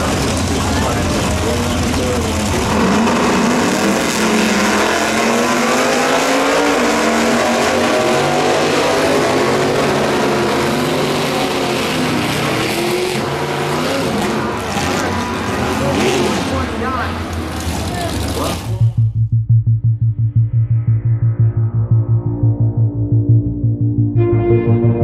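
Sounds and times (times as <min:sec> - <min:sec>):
drag cars racing at full throttle: 0:00.0 - 0:18.8.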